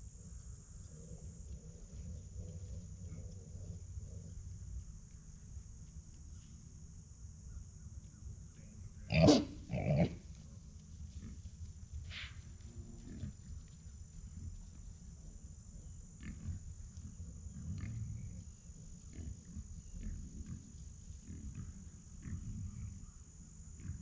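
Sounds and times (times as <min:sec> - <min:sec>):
high insect drone: 0:00.0 - 0:24.0
hogs grunting: 0:09.1 - 0:10.2, 0:17.5 - 0:18.4, 0:19.0 - 0:23.1.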